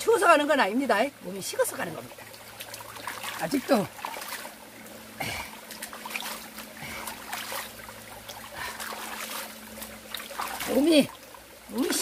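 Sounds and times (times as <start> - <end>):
stream trickling over rocks: 0.0 - 12.0.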